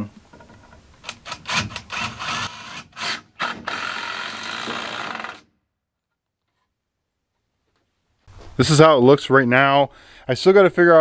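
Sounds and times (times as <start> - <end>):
power drill driving screw into wood: 1.0 - 5.5.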